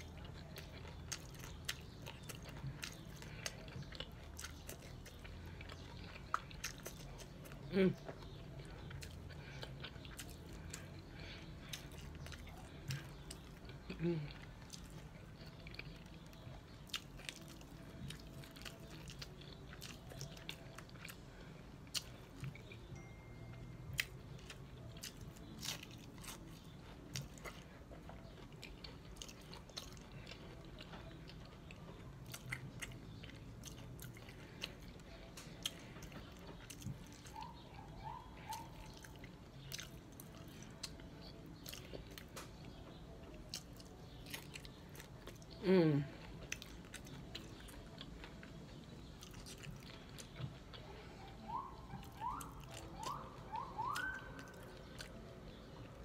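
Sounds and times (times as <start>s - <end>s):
crunching taco shells: 0.0s - 56.0s.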